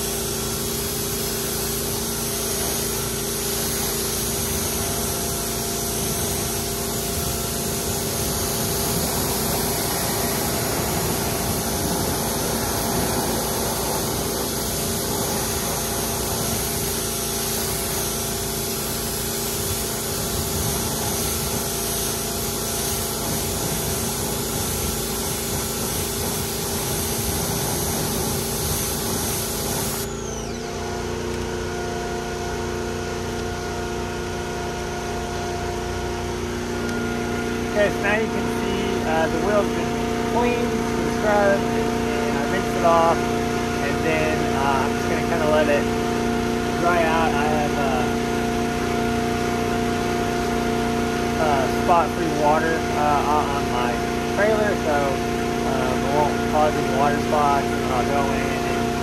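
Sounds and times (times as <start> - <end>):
pressure washer jet spattering: 0.0 - 30.5
pump motor hum: 0.0 - 59.0.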